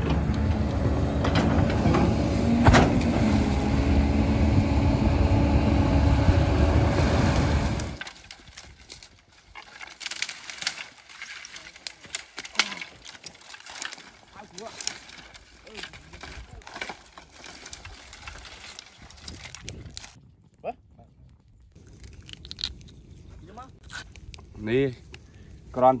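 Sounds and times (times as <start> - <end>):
excavator diesel engine running: 0.0 - 8.0
dry branches snapping and rustling: 7.0 - 20.2, 21.8 - 25.5.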